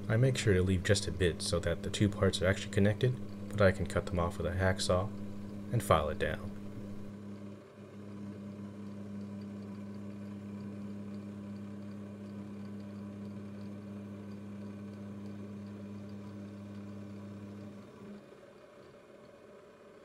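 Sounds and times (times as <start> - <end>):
milling machine spindle hum: 0.0 - 20.0.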